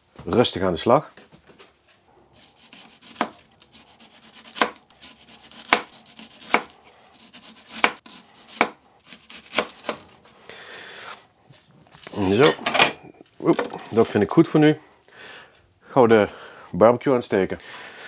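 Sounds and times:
knife slicing onion: 2.4s - 10.4s.

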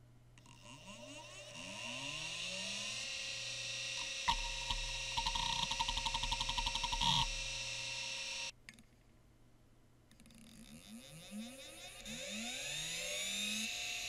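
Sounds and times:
hard drive spinning whine: 0.0s - 8.5s, 10.4s - 14.0s
hard drive heads ticking: 0.4s - 8.5s.

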